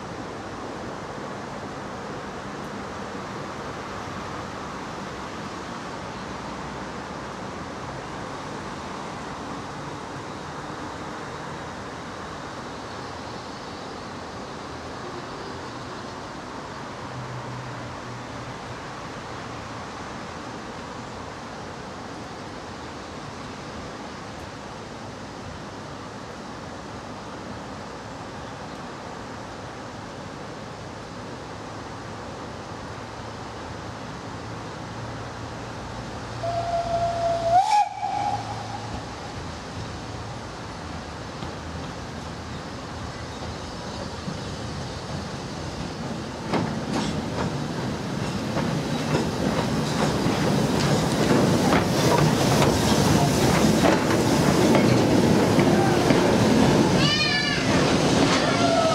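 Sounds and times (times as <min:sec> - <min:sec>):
steam locomotive hissing: 0:36.2 - 0:58.9
steam locomotive whistle: 0:36.4 - 0:39.2, 0:58.3 - 0:58.9.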